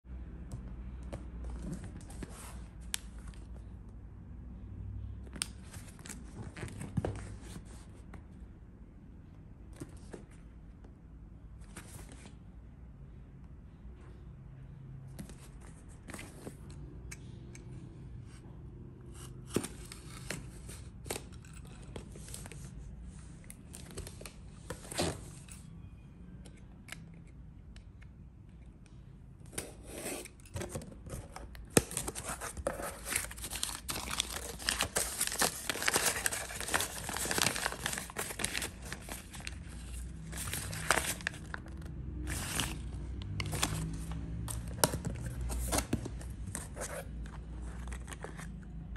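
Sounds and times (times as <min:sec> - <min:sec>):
scissors cutting packaging: 0:29.5 - 0:41.6
paper crinkling: 0:31.1 - 0:48.6
plastic wrap crinkling: 0:31.9 - 0:42.8.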